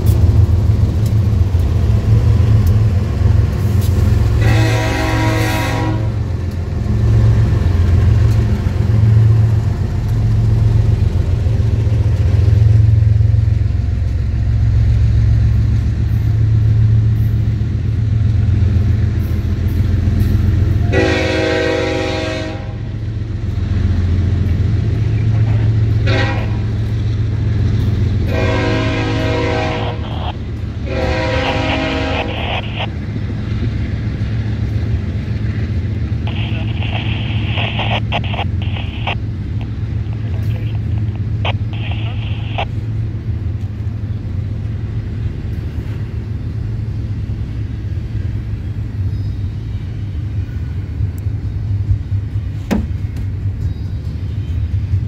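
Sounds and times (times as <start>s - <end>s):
train rumbling past: 0.0s - 55.0s
locomotive horn blasts: 4.4s - 6.2s, 20.8s - 22.9s, 26.0s - 26.8s, 28.2s - 32.9s.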